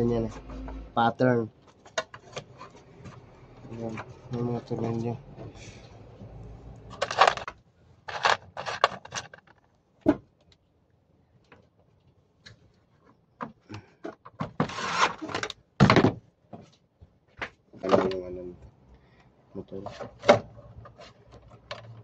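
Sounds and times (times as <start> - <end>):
plastic parts rustling and clicking: 1.6 - 4.9, 6.9 - 9.8, 14.0 - 16.1, 19.9 - 22.0.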